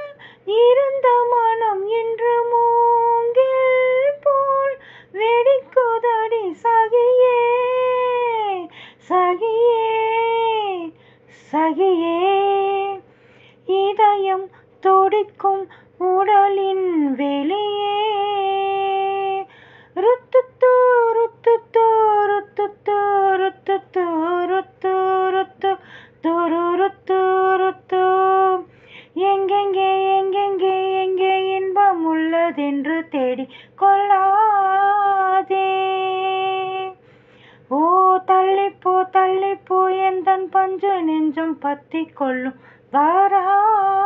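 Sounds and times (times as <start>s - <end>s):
high voice singing wordless melody: 37.7s - 44.0s.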